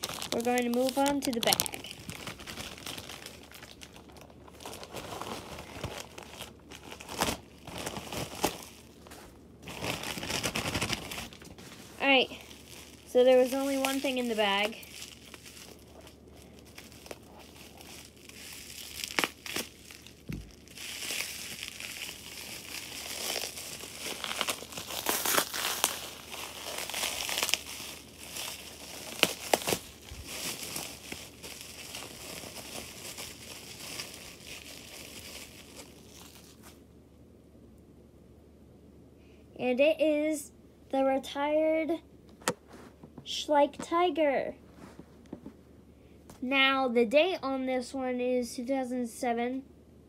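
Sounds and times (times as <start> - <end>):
bubble wrap crinkling: 0.0 - 36.9.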